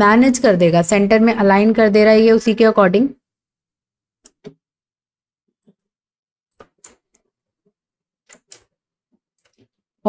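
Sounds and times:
computer mouse clicks: 6.6 - 7.2, 8.3 - 8.7.

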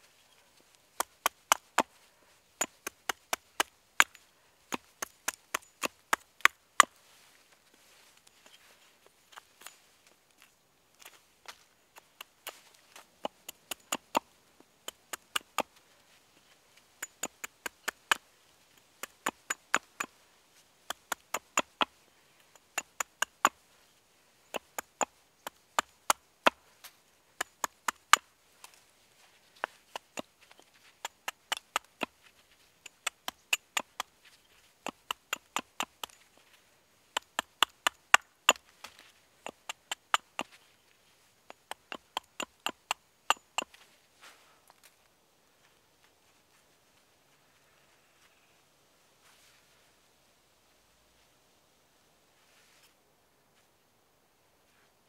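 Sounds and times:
hatchet chopping wood: 1.0 - 1.9, 2.6 - 7.0, 12.0 - 15.7, 17.0 - 18.2, 18.8 - 20.1, 20.8 - 23.6, 24.5 - 26.6, 27.4 - 28.3, 31.0 - 32.2, 32.8 - 34.1, 34.8 - 36.2, 37.1 - 40.6, 41.5 - 43.7.

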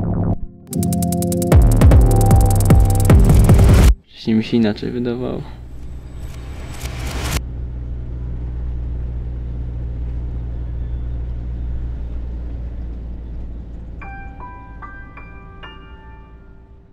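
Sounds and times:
car road rumble: 5.6 - 16.9.

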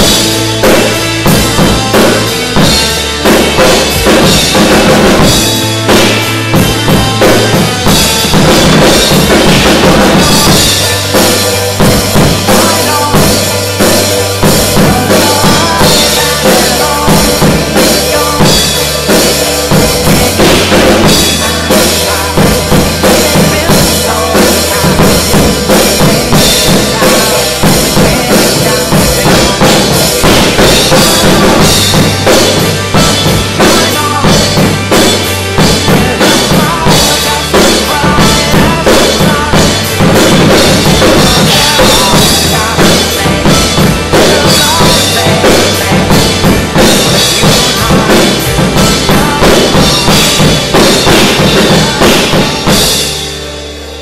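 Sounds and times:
drum kit played hard: 0.0 - 54.0
recorded pop-rock instrumental: 0.0 - 54.0.

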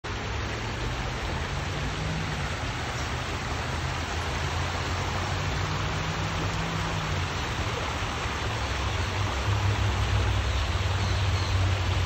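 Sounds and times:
water rushing down waterfall: 0.0 - 12.0.

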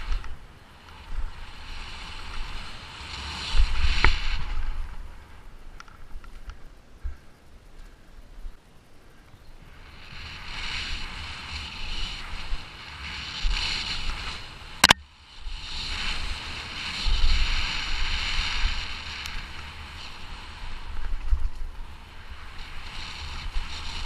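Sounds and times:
wind rushing over microphone: 0.0 - 7.3, 9.5 - 24.0
bike tyres rattling over dirt: 0.0 - 8.0, 9.1 - 24.0
sharp clack: 14.8 - 15.0.

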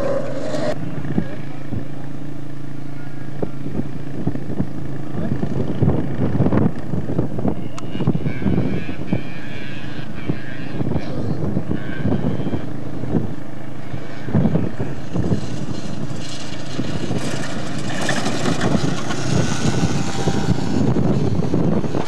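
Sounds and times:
car engine revving: 0.0 - 1.8, 11.7 - 22.0.

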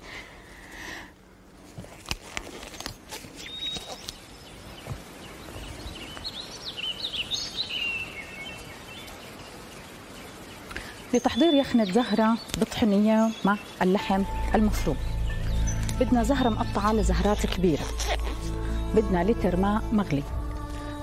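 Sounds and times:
bird chirping: 10.2 - 20.2.

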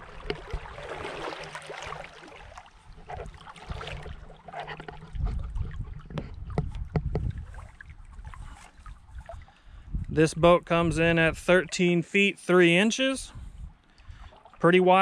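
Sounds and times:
water moving at riverbank: 0.0 - 15.0
wind rumble on microphone: 2.8 - 11.6, 13.2 - 14.3.

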